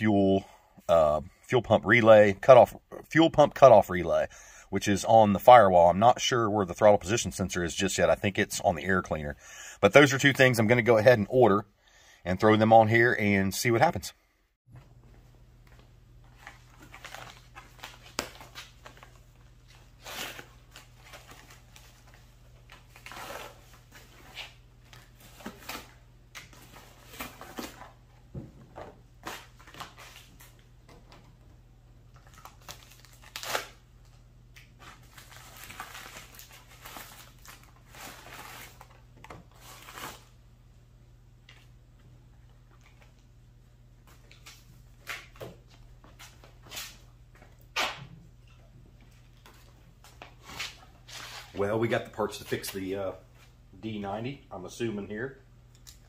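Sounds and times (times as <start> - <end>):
cardboard and paper rustling: 15.7 - 31.2.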